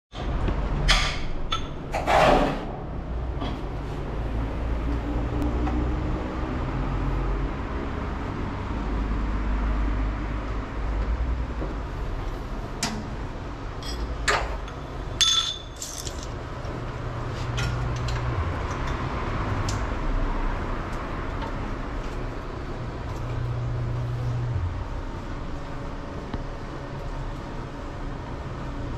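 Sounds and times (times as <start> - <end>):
steady low hum: 2.6 - 28.9
metal tools clinking: 13.8 - 16.4.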